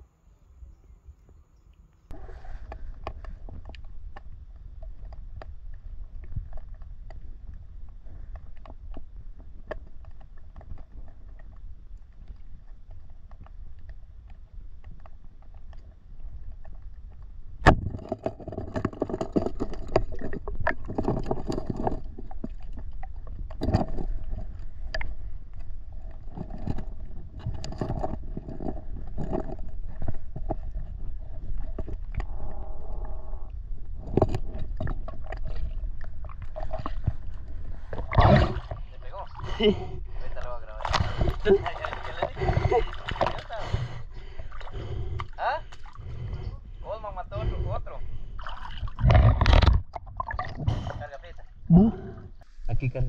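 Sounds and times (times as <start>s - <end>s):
underwater rush of water: 37.8s - 39.9s.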